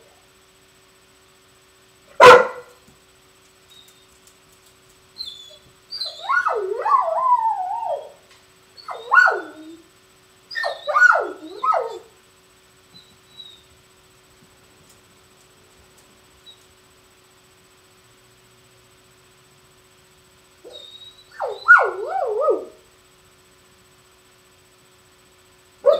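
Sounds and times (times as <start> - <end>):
dog barking: 2.1 - 2.8, 8.9 - 9.7, 10.6 - 12.1, 20.7 - 22.8
dog howling and whining: 5.2 - 8.2, 8.8 - 9.9, 10.5 - 12.1, 13.0 - 13.6, 20.6 - 22.8.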